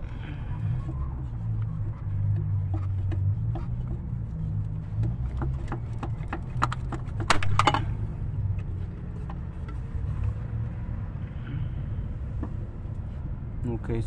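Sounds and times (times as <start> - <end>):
low steady rumble: 0.0 - 14.0
metal pipe clicks and knocks: 5.0 - 8.0.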